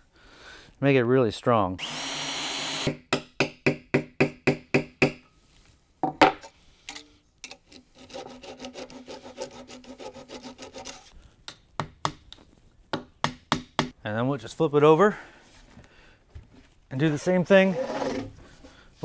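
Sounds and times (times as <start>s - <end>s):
saw rasping: 8.0s - 11.1s.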